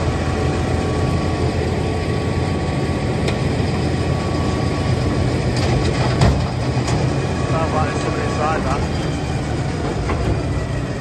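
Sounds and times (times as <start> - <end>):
wood chipper chewing wood: 4.3 - 9.1.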